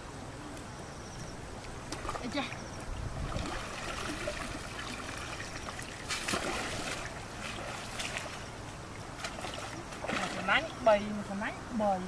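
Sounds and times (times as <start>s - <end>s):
water trickling and splashing: 1.6s - 12.0s
loud water splash: 3.2s - 8.3s.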